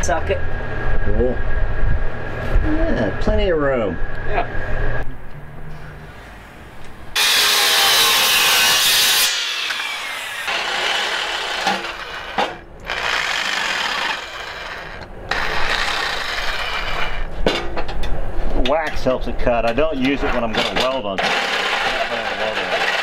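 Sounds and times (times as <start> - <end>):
jigsaw cutting steel: 7.2 - 17.3, 21.2 - 23.0.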